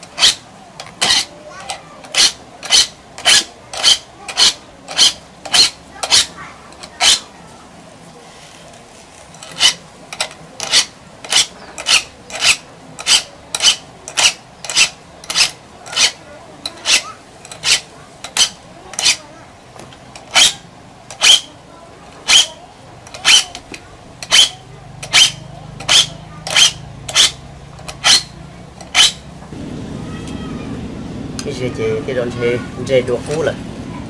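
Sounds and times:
file rasping on saw teeth: 0.1s - 0.4s, 1.0s - 1.3s, 2.0s - 7.3s, 9.4s - 9.8s, 10.6s - 19.2s, 20.3s - 21.5s, 22.3s - 22.5s, 23.1s - 29.2s.

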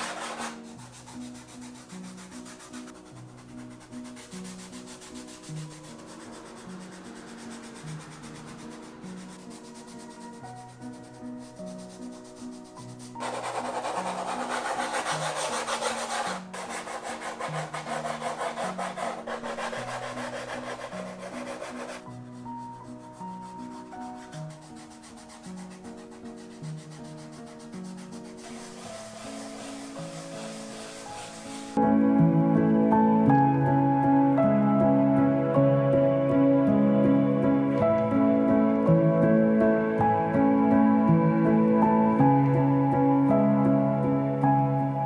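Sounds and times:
pastel scratching on paper: 0.0s - 31.8s
gentle background music: 0.0s - 45.0s.

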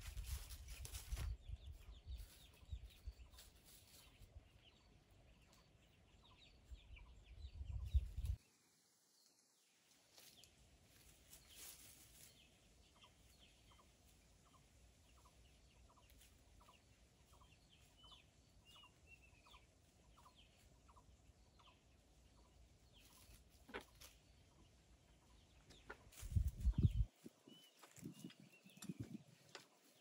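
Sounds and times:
bird chirps: 11.3s - 30.0s
chickens clucking softly: 12.2s - 30.0s.

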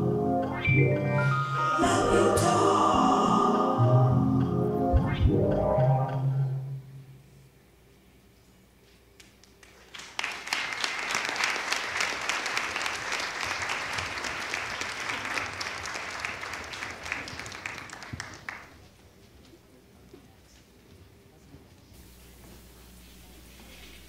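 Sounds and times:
audience applauding: 9.4s - 19.0s.

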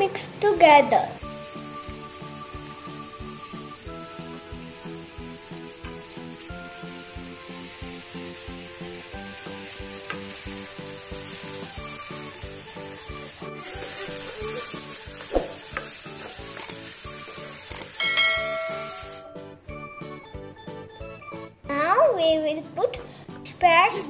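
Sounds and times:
onions sizzling in oil: 0.0s - 19.3s
background music with beat: 1.2s - 21.8s
short chime: 18.0s - 19.4s.

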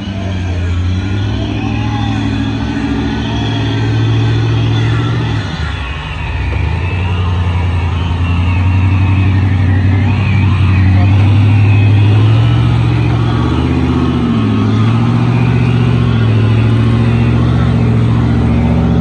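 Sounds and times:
vehicle engine running hard: 0.0s - 19.0s.

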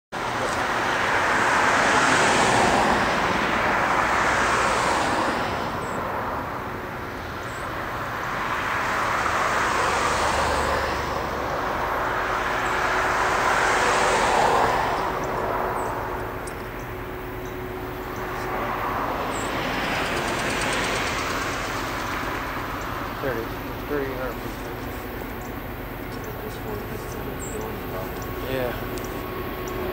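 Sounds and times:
distant train rushing roar: 0.2s - 29.9s.

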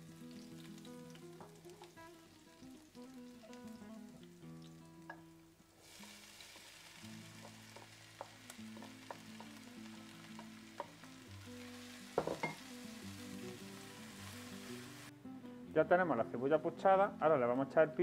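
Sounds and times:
onion sizzling in oil: 0.0s - 15.1s
spatula tapping a pot: 7.4s - 9.6s, 10.3s - 11.0s.

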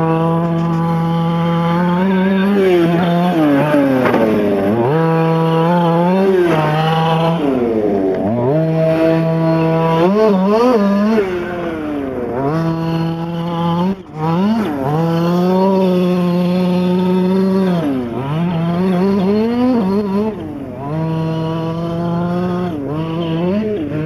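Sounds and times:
small two-stroke engine revving: 0.0s - 24.0s.

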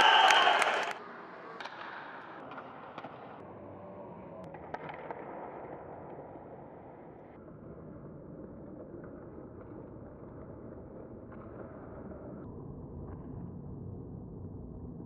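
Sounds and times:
sharp clacks of sticks and puck: 0.0s - 3.4s, 4.4s - 7.0s
arena crowd noise: 0.0s - 4.7s.

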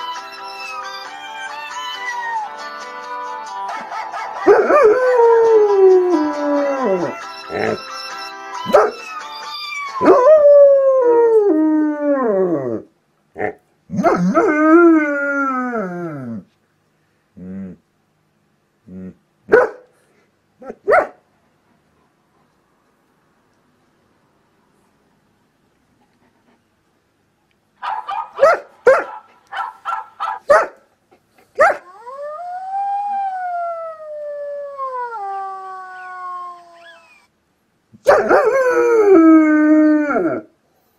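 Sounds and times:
dog howling: 4.5s - 7.8s, 31.7s - 37.3s
dog barking and yelping: 8.6s - 9.1s, 19.5s - 19.9s, 20.6s - 21.2s, 27.8s - 32.0s, 38.0s - 38.6s
dog yelp: 8.6s - 10.1s, 27.8s - 30.8s.

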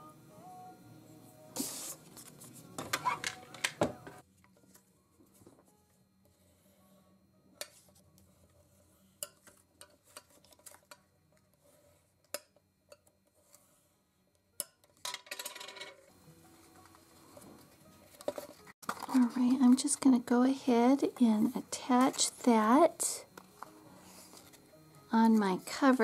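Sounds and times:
tools and paper clicking: 9.2s - 11.6s.

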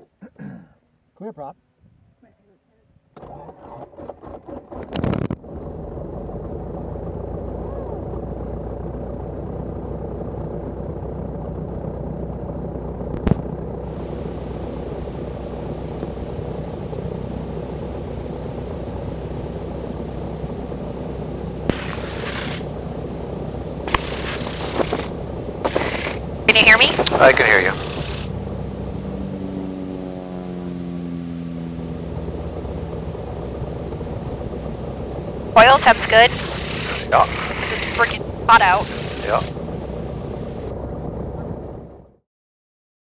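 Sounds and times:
aircraft engine idling: 5.9s - 42.0s
starter cranking engine: 23.9s - 26.2s, 27.0s - 28.3s, 36.3s - 38.1s.

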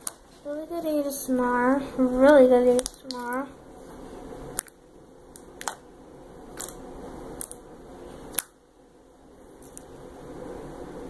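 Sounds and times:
sticky slime clicks and pops: 4.6s - 5.8s, 6.6s - 6.8s, 7.4s - 7.6s, 8.3s - 8.6s.

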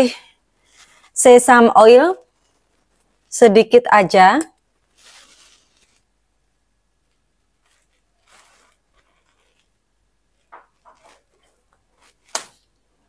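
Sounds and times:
faint rustles and scrapes: 0.6s - 1.2s, 2.1s - 3.4s, 4.8s - 6.2s, 7.1s - 12.3s.

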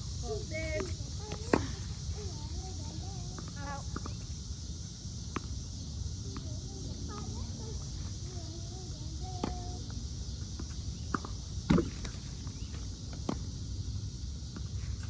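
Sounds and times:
tennis ball pocks: 0.7s - 1.8s, 10.6s - 13.5s.

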